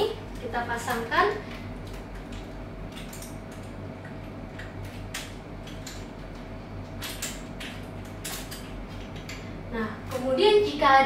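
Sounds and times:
steady low hum: 0.0s - 11.0s
padlock clicks and rustles: 6.8s - 9.4s.

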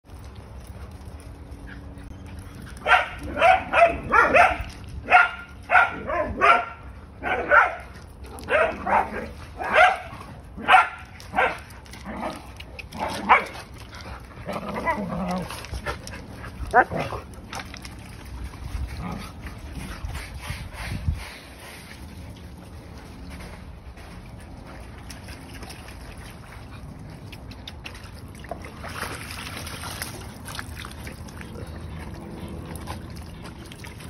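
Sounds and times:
dogs barking: 2.8s - 12.4s, 13.0s - 13.6s, 16.7s - 17.2s.

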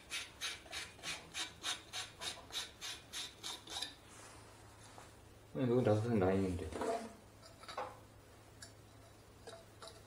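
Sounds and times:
rhythmic rasping of pipe fitting: 0.0s - 4.0s.

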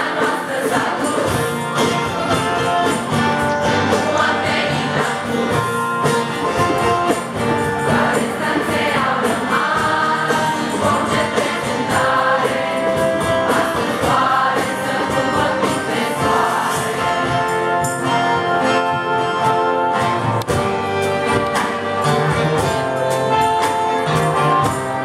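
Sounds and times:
crowd singing in chorus: 0.0s - 19.0s
acoustic band playing: 0.0s - 25.0s.

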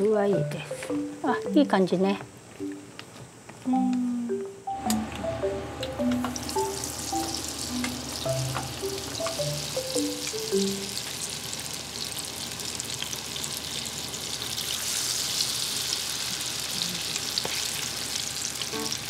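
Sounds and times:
batter deep-frying in oil: 6.3s - 19.0s.

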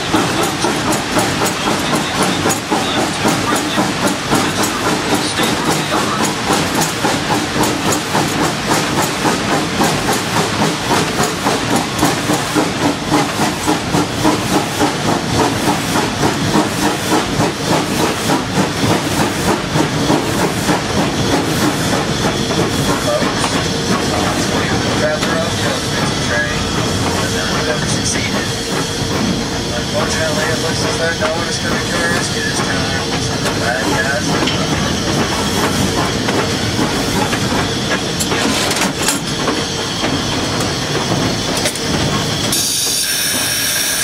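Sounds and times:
steam locomotive rhythmic beat: 0.0s - 44.0s
steam hiss: 39.5s - 44.0s.

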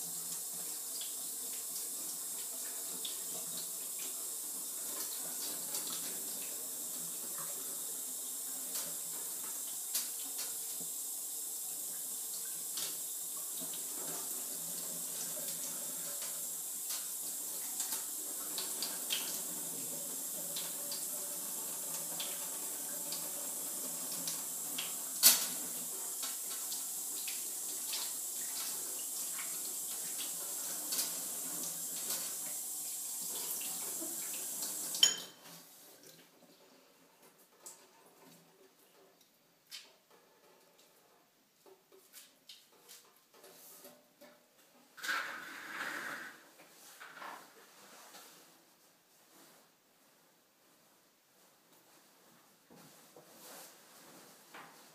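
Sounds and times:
tap water running into sink: 0.0s - 35.5s.

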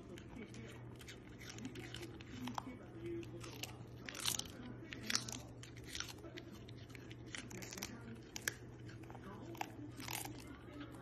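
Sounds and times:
dog crunching food: 0.0s - 11.0s.

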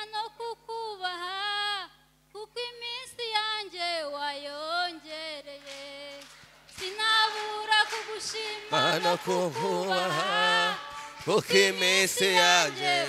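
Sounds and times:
woman singing unaccompanied: 0.0s - 6.2s, 6.8s - 13.0s
lower voice singing: 6.8s - 13.0s.

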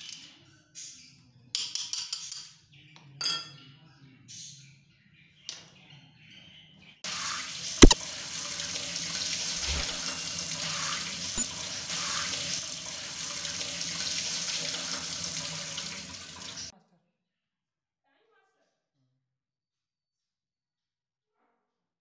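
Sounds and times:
water splashing into steel sink: 7.2s - 16.7s.

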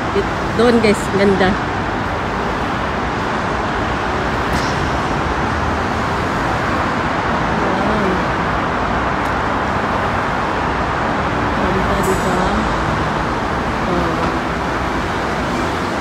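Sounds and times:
road traffic roar: 0.0s - 16.0s.

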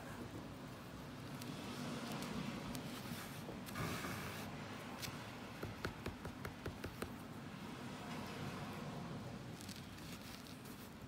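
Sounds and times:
needle working yarn through threads: 0.0s - 7.4s, 8.0s - 11.0s
scratchy rustle: 1.2s - 5.1s, 9.5s - 11.0s
small clicks and taps: 5.0s - 7.2s.

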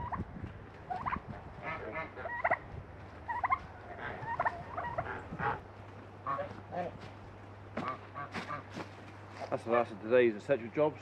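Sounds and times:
geese ducks and turkey calling: 0.8s - 2.6s, 3.2s - 6.6s, 7.8s - 9.9s.

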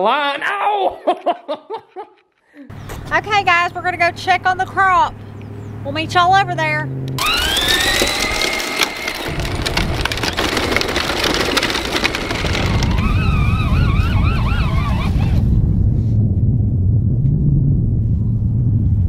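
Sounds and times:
crackling noise: 8.0s - 19.0s
wind buffeting microphone: 9.3s - 19.0s
wavering high tone: 12.6s - 15.4s.

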